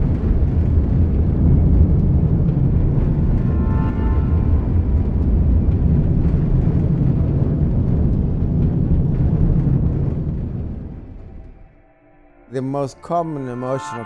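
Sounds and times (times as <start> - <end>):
rocket engine roar: 0.0 - 11.7.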